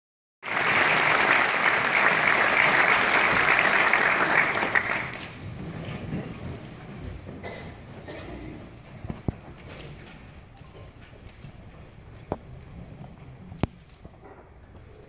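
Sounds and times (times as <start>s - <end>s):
audience applauding: 0.4s - 5.7s.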